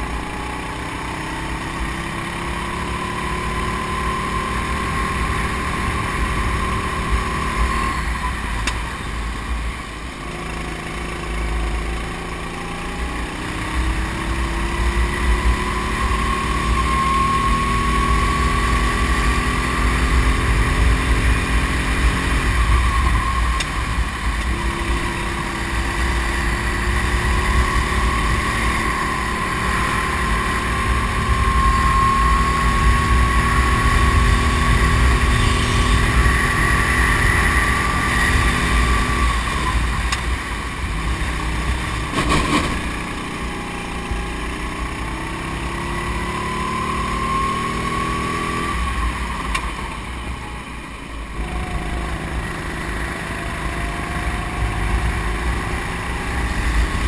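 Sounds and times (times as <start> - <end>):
kart engine revving: 0.0 - 8.6, 10.2 - 57.0.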